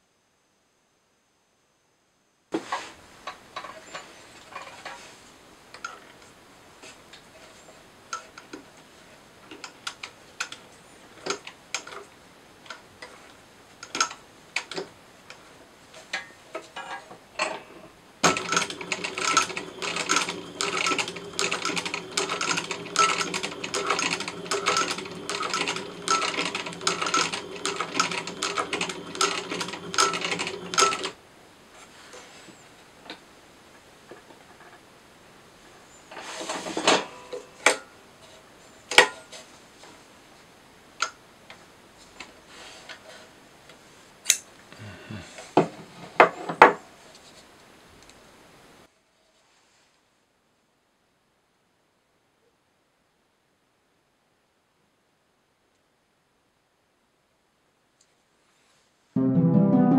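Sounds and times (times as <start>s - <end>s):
sewing machine stitching: 18.2s - 31.2s.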